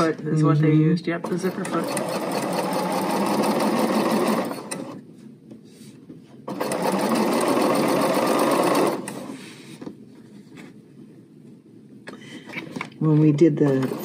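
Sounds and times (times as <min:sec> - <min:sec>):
sewing machine stitching fast: 0:01.2 - 0:05.0, 0:06.5 - 0:09.3, 0:13.6 - 0:14.0.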